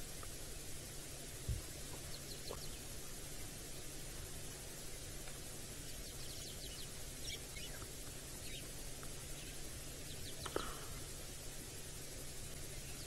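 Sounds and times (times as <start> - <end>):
steady low background noise: 0.0 - 13.0
faint high bird chirps: 5.8 - 8.7.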